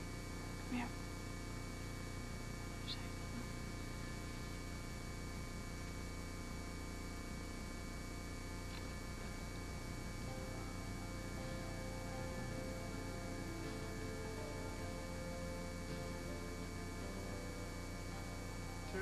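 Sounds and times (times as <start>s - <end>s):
electrical mains hum: 0.0s - 19.0s.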